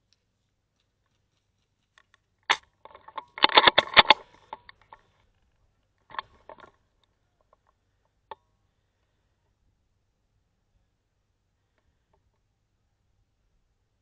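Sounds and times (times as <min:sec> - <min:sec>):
airsoft rifle handling clicks: 0:01.8 - 0:05.4, 0:06.0 - 0:07.1
rattles: 0:02.5 - 0:06.8.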